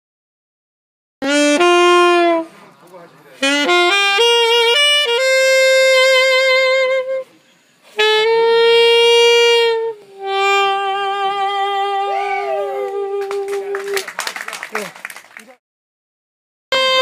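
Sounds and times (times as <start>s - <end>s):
alto saxophone melody: 1.2s - 14.0s, 16.7s - 17.0s.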